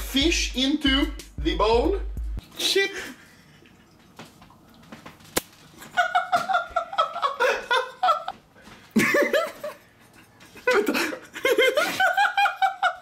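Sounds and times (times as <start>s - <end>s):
person laughing: 5.8s - 8.4s, 9.0s - 9.8s, 10.5s - 13.0s.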